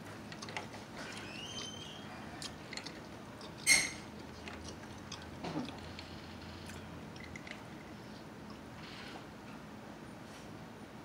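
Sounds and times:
person chewing with mouth clicks: 0:02.3 - 0:08.6.

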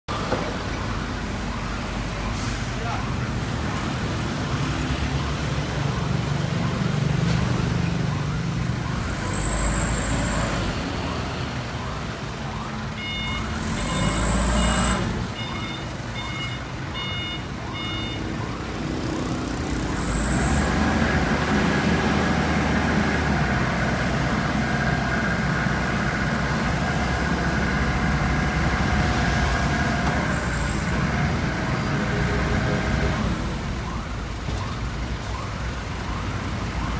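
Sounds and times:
forklift diesel engine running: 0:00.1 - 0:36.9
road traffic passing: 0:00.1 - 0:36.9
pulsed electronic beeps: 0:12.6 - 0:18.6.

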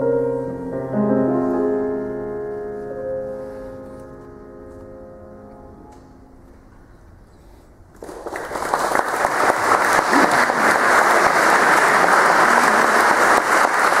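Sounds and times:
audience applauding: 0:07.9 - 0:14.0.

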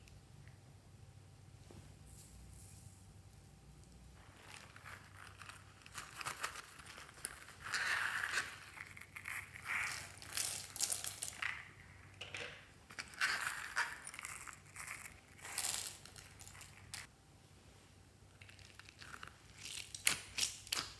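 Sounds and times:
coin purse zip and beads rustling: 0:04.2 - 0:12.0, 0:12.9 - 0:17.1.

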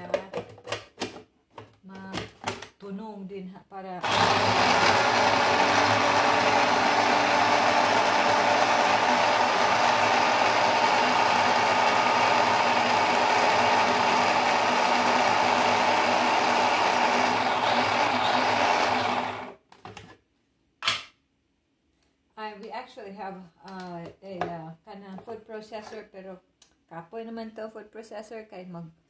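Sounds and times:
electric food chopper running: 0:04.0 - 0:19.6.

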